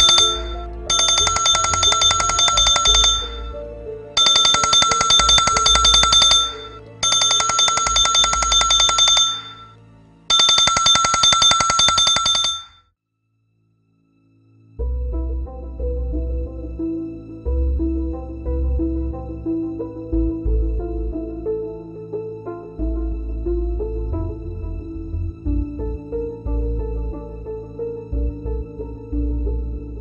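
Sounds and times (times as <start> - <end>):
mobile phone trilling ringtone: 0.0 - 3.6, 4.2 - 12.8.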